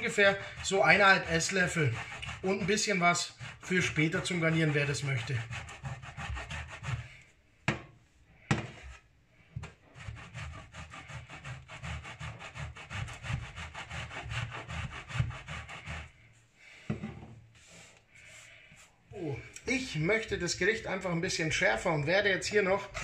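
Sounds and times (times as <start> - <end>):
cheese rasping on metal grater: 0.0 - 7.2, 10.0 - 16.2.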